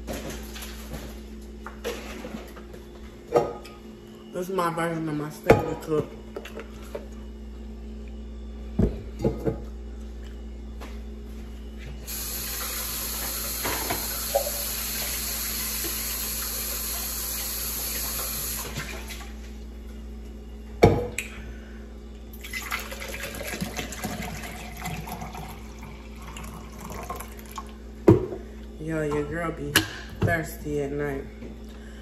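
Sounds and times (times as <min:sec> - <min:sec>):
water pouring into a glass: 0:22.4 - 0:27.7.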